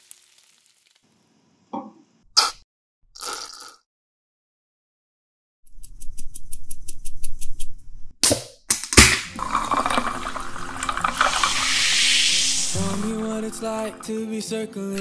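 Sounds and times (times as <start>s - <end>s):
water pouring over ice: 0.0s - 1.0s, 9.2s - 15.0s
fizzing: 9.2s - 14.3s.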